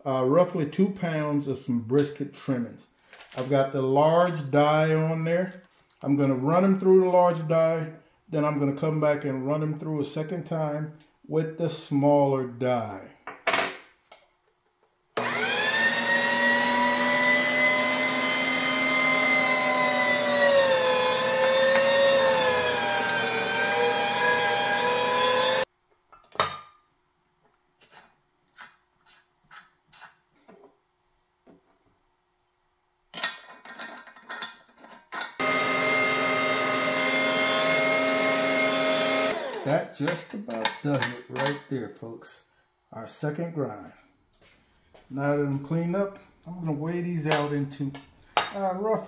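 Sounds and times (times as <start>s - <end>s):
electric meat grinder whining: 15.2s - 25.7s, 35.4s - 39.9s.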